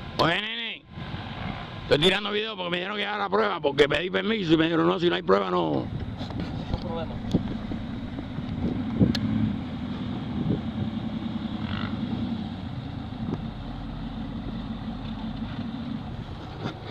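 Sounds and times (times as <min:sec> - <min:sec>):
vehicle engine running: 0:05.7 - 0:16.9.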